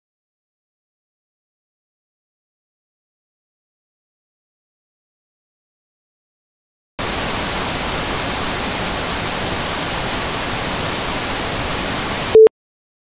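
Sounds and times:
television static hiss: 7.0 - 12.4
short loud beep: 12.3 - 12.5.

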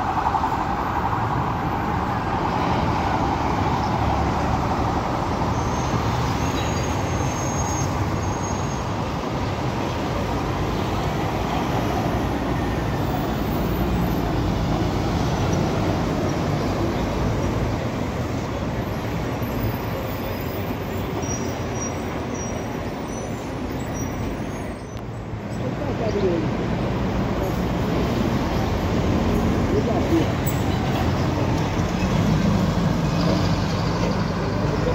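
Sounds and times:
bus engine passing: 0.0 - 34.9
road noise: 0.0 - 34.9.

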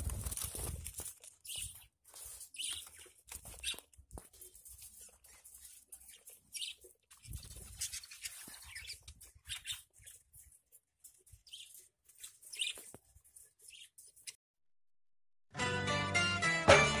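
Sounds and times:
budgerigars chirping: 1.4 - 3.9, 6.0 - 10.2, 11.4 - 12.9.

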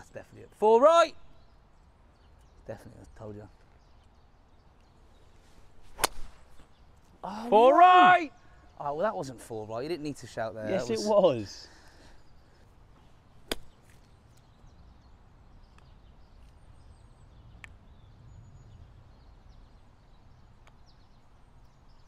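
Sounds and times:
golf club striking ball: 5.9 - 6.4, 13.4 - 13.8.

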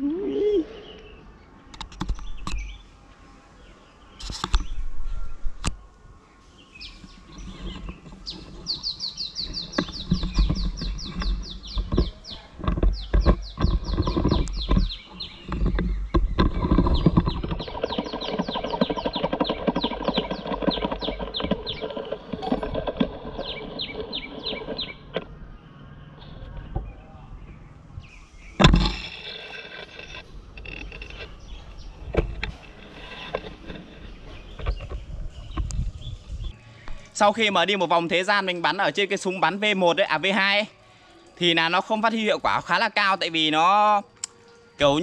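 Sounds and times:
bird chirping in trills: 3.6 - 40.0
knocks and low thumps: 9.6 - 25.3.

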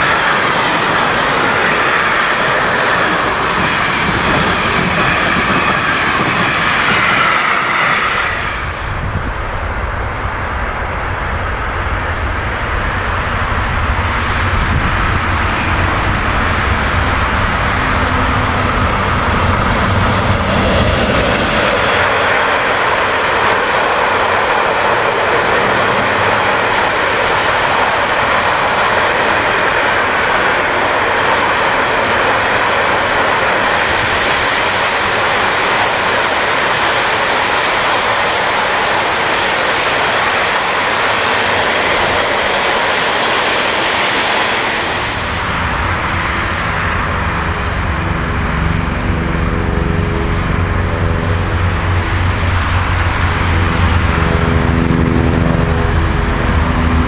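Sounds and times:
electric locomotive humming: 0.0 - 57.0
steel wheels rumbling on rails: 0.0 - 57.0.

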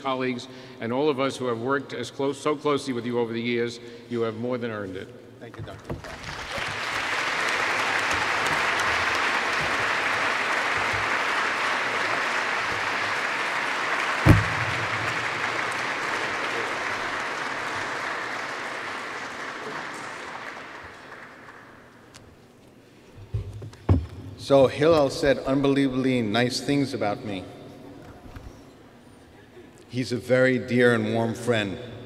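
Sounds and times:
audience applauding: 6.0 - 22.1
thump: 14.2 - 15.4.

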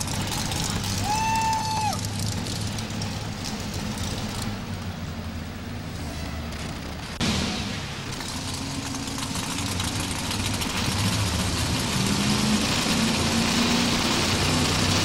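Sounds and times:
truck engine idling: 0.0 - 11.8.

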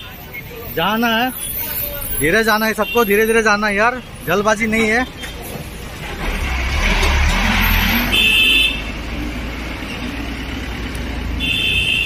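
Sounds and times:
bus engine rumble: 0.0 - 12.0
vehicle horn blasts: 8.0 - 8.9, 11.4 - 12.0.

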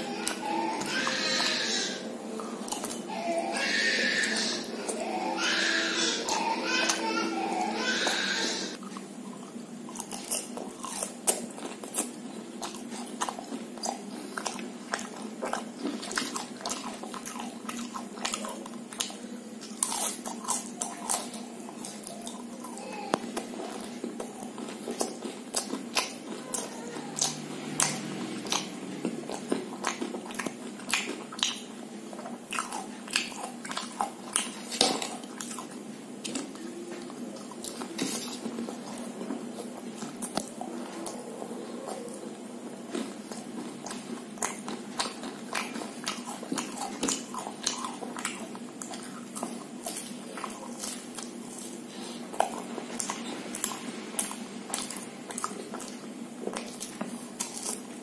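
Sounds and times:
person chewing crunchy snacks: 0.0 - 58.0.

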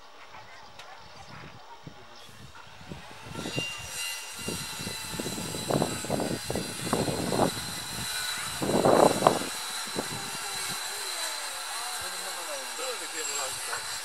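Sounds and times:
wind gusting on microphone: 0.4 - 11.2.

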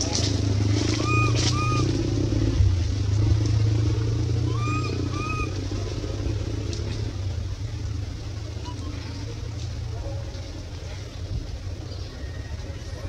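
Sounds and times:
steady low rumble: 0.0 - 13.0
infant monkey coo calls: 0.7 - 2.4, 4.3 - 6.0, 8.5 - 9.4.

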